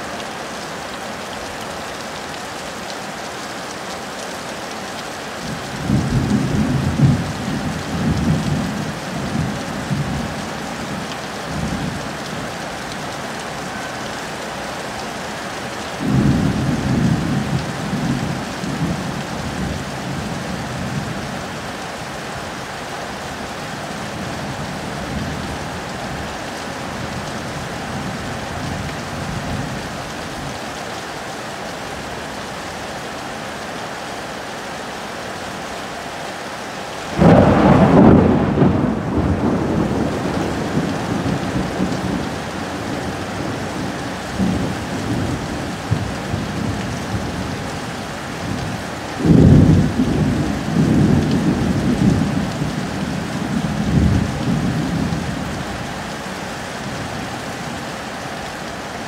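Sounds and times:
heavy rain on foliage: 0:00.0 - 0:59.0
thunder rumbling: 0:37.1 - 0:47.2.

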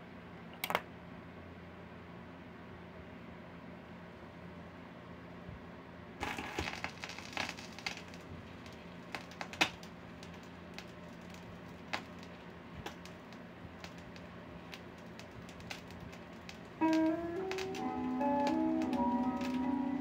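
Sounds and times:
low steady hum: 0:00.0 - 0:20.0
vinyl record crackling and pops: 0:06.2 - 0:20.0.

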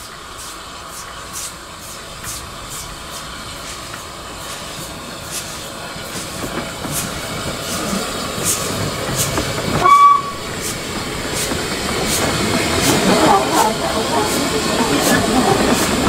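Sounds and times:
steam locomotive exhaust beats: 0:00.0 - 0:16.0
steam whistle toot: 0:09.8 - 0:10.4.

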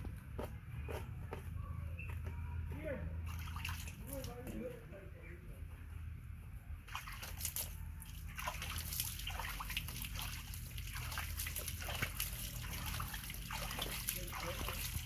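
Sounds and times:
water splashing: 0:03.2 - 0:04.4, 0:06.9 - 0:15.0
water trickling: 0:06.9 - 0:15.0.

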